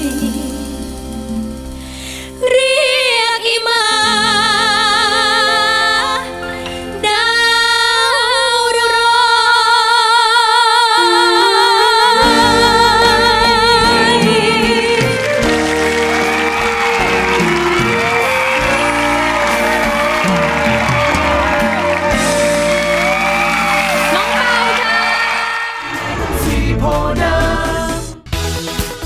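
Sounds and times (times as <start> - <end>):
two women singing a duet: 0.0 - 1.6, 2.3 - 15.5
live band accompaniment: 0.0 - 7.6, 11.0 - 29.0.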